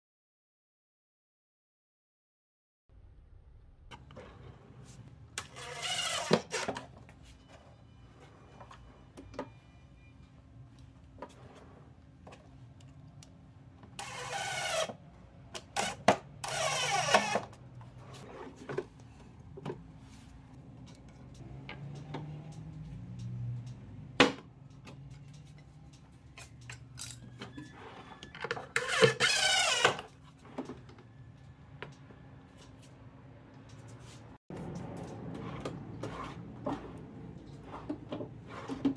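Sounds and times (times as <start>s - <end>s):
drawer rolling on slides: 3.9s - 6.9s, 11.2s - 12.4s, 16.5s - 19.0s, 35.2s - 38.9s.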